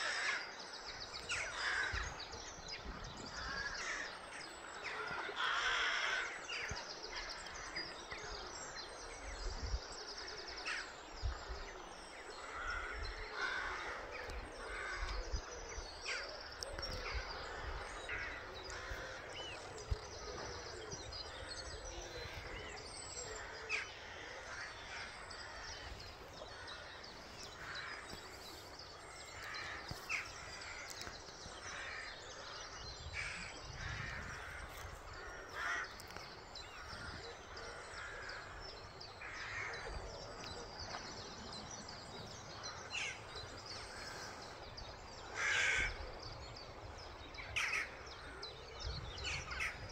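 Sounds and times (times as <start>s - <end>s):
birds chirping: 0.0s - 49.9s
flowing river water: 0.0s - 49.9s
crow cawing: 5.3s - 6.4s, 33.2s - 36.0s, 45.4s - 46.0s.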